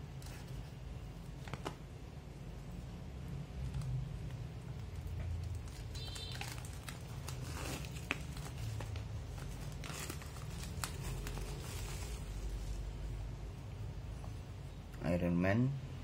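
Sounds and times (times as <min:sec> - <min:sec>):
plastic shrink-wrap crinkling: 0:03.6 - 0:12.8.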